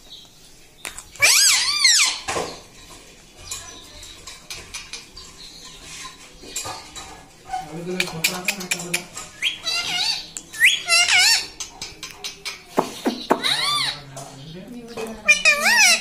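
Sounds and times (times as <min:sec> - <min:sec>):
parakeet squawks: 0:01.2 - 0:02.4, 0:09.4 - 0:11.7, 0:13.3 - 0:14.0, 0:15.2 - 0:16.0.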